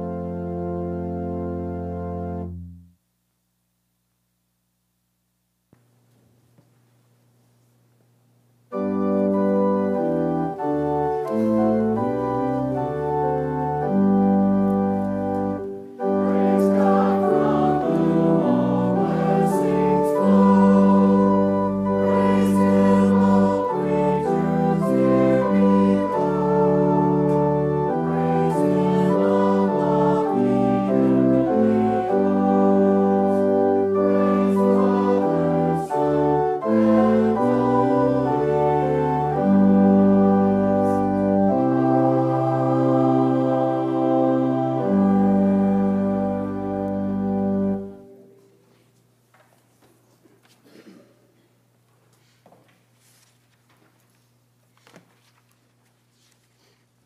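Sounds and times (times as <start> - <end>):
organ playing held chords: 0.0 - 3.0, 8.7 - 48.6.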